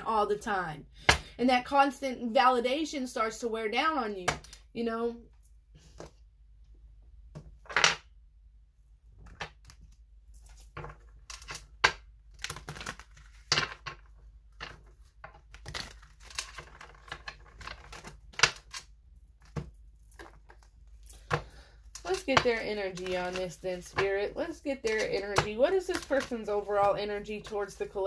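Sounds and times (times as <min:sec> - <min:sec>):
cards being shuffled: 0:14.6 - 0:28.0.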